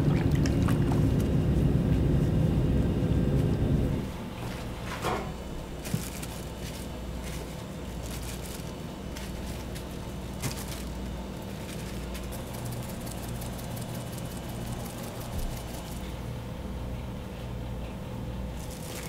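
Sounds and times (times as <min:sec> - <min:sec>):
low kitchen hum: 0:00.0 - 0:19.0
salt crackling onto meat: 0:05.8 - 0:16.2.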